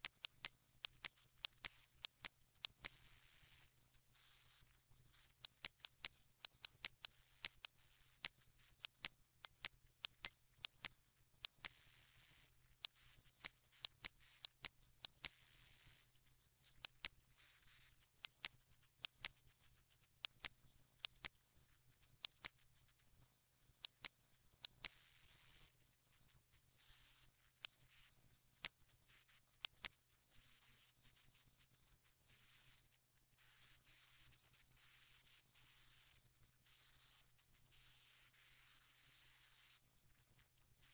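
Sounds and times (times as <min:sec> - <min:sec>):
computer mouse buttons clicking: 0:00.0 - 0:23.0, 0:23.8 - 0:25.8, 0:26.6 - 0:31.5
faint steady hum: 0:00.0 - 0:40.9.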